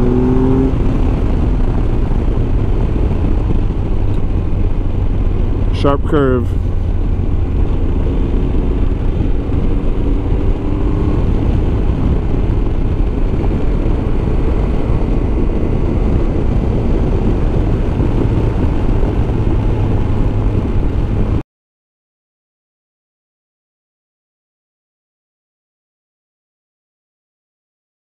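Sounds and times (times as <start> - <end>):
motorcycle engine running: 0.0 - 21.4
wind rushing on microphone: 0.0 - 21.4.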